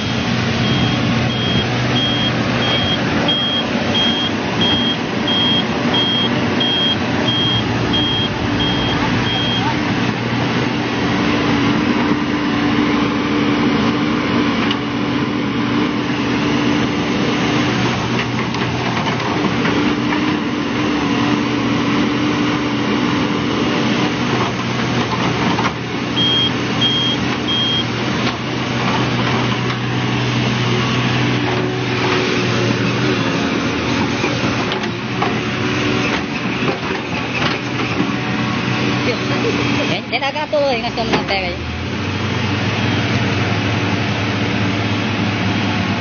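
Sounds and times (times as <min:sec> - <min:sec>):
high warning alarm beeps: 0:00.0 - 0:09.7, 0:26.2 - 0:27.9
excavator diesel engine running: 0:00.0 - 0:46.0.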